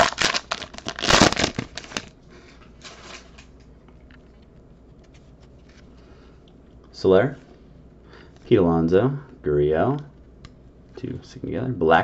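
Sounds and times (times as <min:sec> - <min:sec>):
foil wrapper crinkling: 0:00.0 - 0:02.1, 0:02.8 - 0:03.5.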